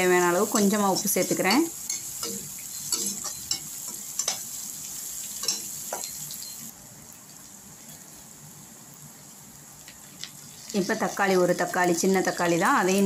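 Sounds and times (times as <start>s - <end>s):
onions sizzling in hot oil: 0.0s - 13.0s
spatula scraping and clicking on pan: 0.5s - 4.6s, 5.3s - 6.6s.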